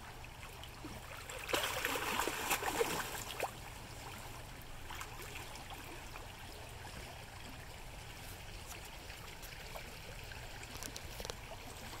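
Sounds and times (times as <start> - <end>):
water splashes: 0.0 - 12.0
river running over gravel: 7.6 - 12.0.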